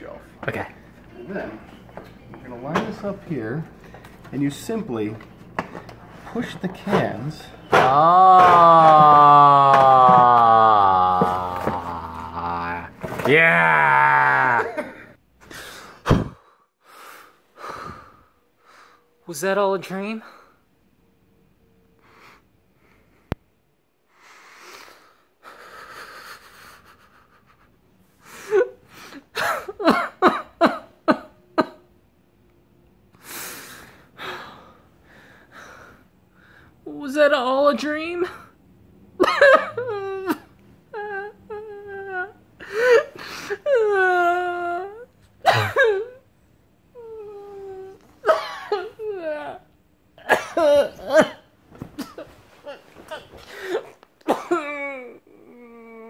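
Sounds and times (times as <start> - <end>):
person gasping: 7.7 - 12.9, 53.1 - 54.0
person moaning: 7.7 - 15.2, 39.7 - 46.2, 52.6 - 56.0
person sobbing and groaning: 7.7 - 15.2, 39.2 - 46.2, 46.9 - 56.0
person breathing heavily: 14.8 - 19.2.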